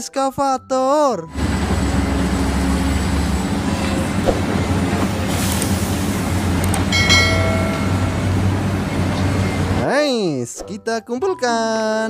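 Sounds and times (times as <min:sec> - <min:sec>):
excavator diesel engine running: 0:01.3 - 0:09.9.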